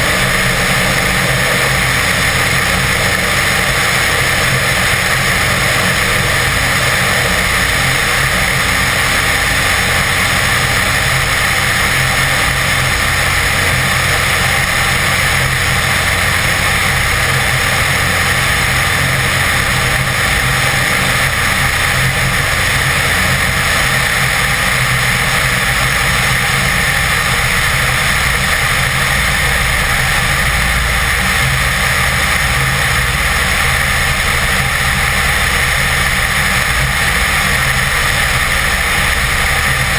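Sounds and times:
aircraft engine and propeller drone: 0.0s - 39.9s.

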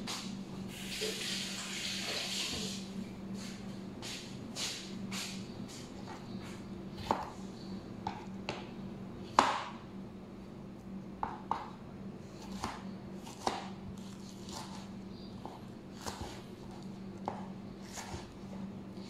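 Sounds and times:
steady low hum: 0.0s - 19.0s
knife chopping on plastic board: 6.0s - 7.4s, 8.0s - 8.7s, 9.3s - 9.8s, 11.2s - 11.8s, 12.4s - 18.4s.

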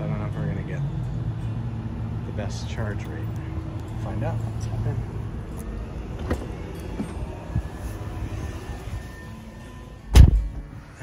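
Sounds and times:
car door shutting: 6.1s - 7.7s, 10.1s - 10.7s.

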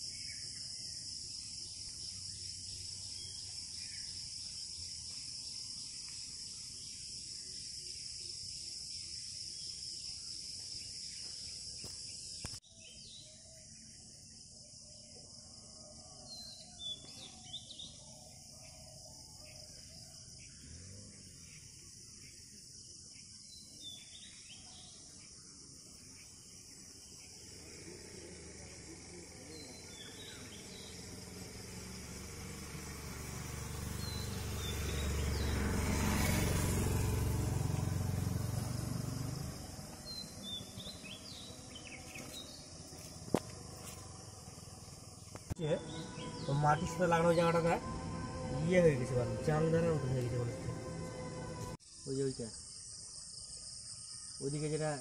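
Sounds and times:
insects chorus: 0.0s - 55.0s
low rumble: 45.7s - 51.8s.

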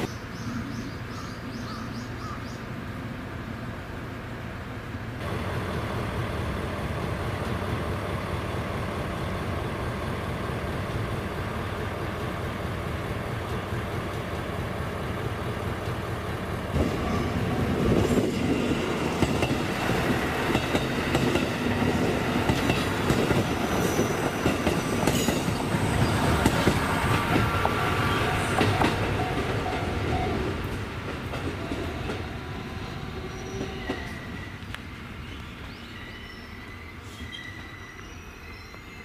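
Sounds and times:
train wheels clicking over rail joints: 17.7s - 27.9s
wheel squeal: 36.0s - 39.0s.

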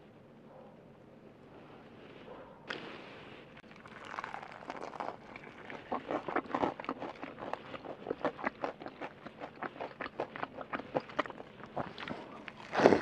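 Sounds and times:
crunchy fried chicken chewing: 3.6s - 13.0s.

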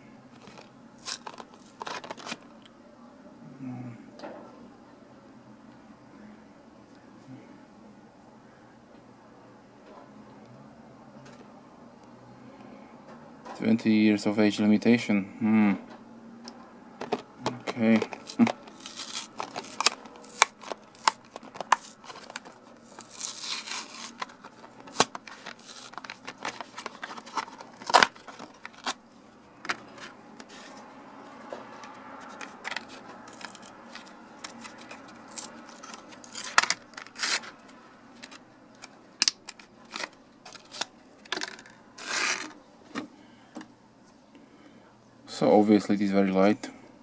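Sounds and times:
cardboard tearing: 0.4s - 2.4s, 17.8s - 29.0s, 32.7s - 37.6s, 41.6s - 42.6s
plastic crinkling and snapping: 0.4s - 2.5s, 17.0s - 29.0s, 32.2s - 42.6s
plastic object handled: 0.4s - 2.5s, 17.0s - 29.0s, 31.8s - 43.7s.

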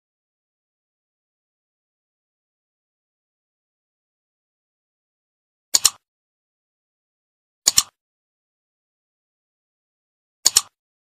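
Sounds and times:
computer mouse double clicks: 5.8s - 6.0s, 7.7s - 8.0s, 10.4s - 10.8s.

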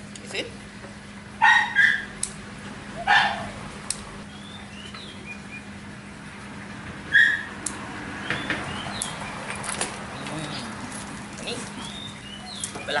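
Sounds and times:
dog whining: 3.0s - 3.6s.

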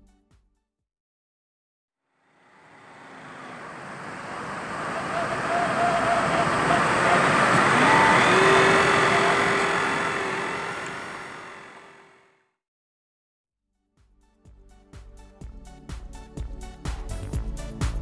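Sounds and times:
model boat motor whine: 2.3s - 12.4s
water noise: 2.5s - 12.1s.

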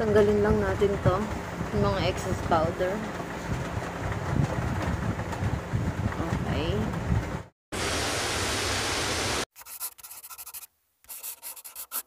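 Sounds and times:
rubbing scratchy noise: 9.5s - 12.0s.

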